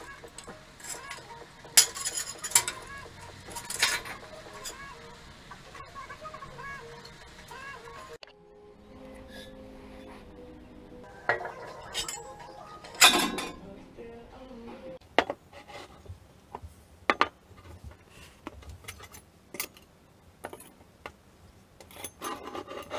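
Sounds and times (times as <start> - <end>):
metal and glass bottles clinking: 0.0 - 4.8, 11.1 - 13.6.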